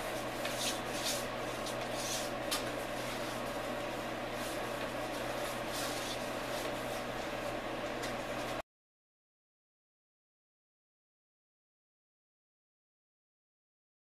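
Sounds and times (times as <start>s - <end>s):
brush swishing: 0.0s - 7.3s
steady low hum: 0.0s - 8.6s.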